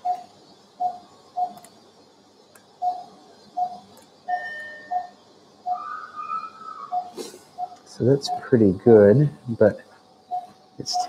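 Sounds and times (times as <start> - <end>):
patient monitor pulse beeps: 0.0 - 1.7, 2.8 - 5.2, 6.9 - 8.6, 10.3 - 11.0.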